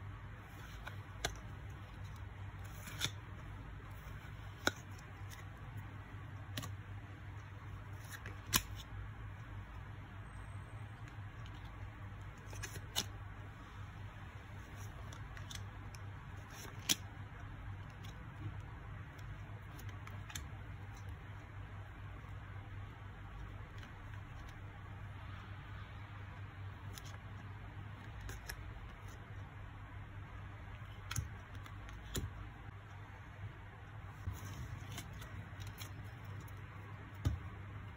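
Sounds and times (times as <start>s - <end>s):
low steady hum: 0.0s - 37.9s
trading cards sliding and ticking: 0.4s - 8.9s.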